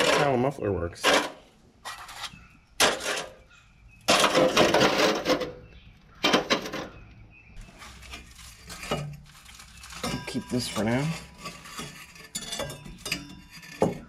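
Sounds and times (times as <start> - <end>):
rattling clanks of metal pipe: 4.1 - 7.0, 10.0 - 14.0.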